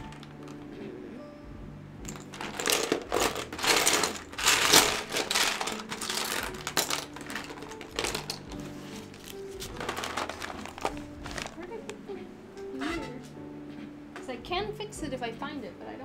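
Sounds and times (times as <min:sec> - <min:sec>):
plastic charms clattering: 0:00.0 - 0:00.7, 0:02.1 - 0:11.6.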